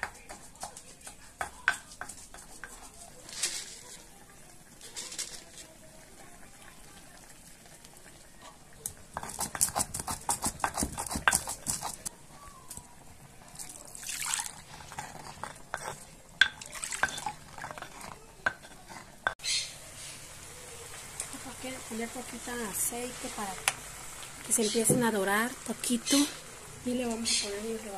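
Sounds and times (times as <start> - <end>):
stone pestle grinding and knocking: 0.0 - 3.0, 9.1 - 12.1, 14.8 - 19.4
water pouring: 13.4 - 15.0, 16.5 - 17.7
pestle sloshing in water: 16.4 - 18.0.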